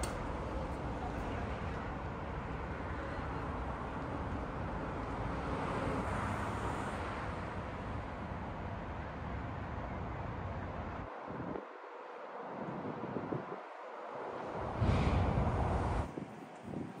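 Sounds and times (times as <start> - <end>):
road traffic hum: 0.0 - 17.0
vehicle passing: 13.9 - 16.1.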